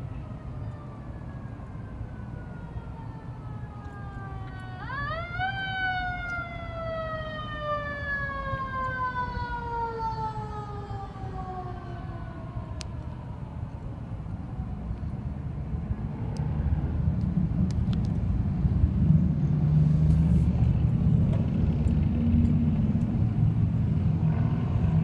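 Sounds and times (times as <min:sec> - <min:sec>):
emergency siren wailing: 0:00.0 - 0:17.1
low traffic rumble: 0:00.0 - 0:25.0.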